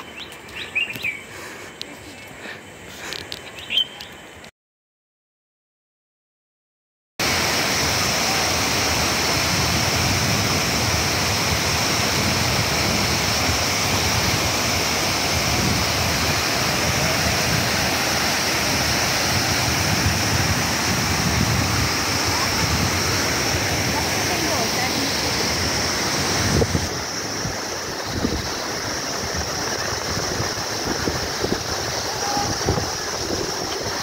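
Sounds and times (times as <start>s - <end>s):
waterfall rushing: 7.2s - 34.0s.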